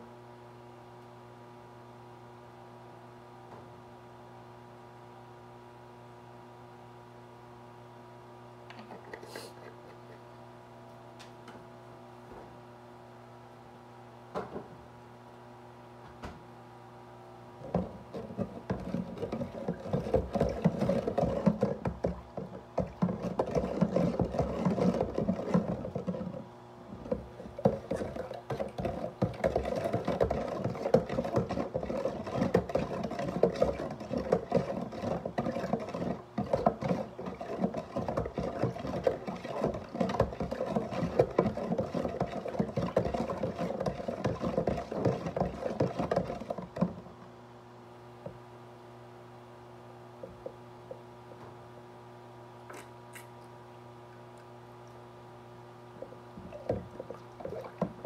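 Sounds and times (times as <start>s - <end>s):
plastic container scraping and rattling: 17.6s - 47.1s.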